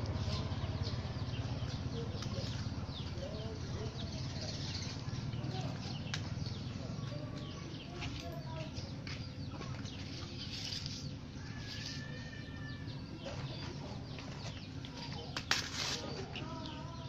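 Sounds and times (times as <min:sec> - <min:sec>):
birds chirping: 0:00.0 - 0:17.0
banana leaf rustling: 0:09.6 - 0:16.4.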